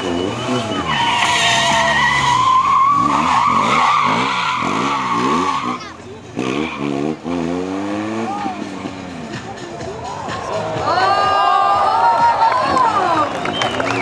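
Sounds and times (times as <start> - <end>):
tyre squealing: 0.0 - 7.2
motorcycle engine revving: 0.0 - 9.4.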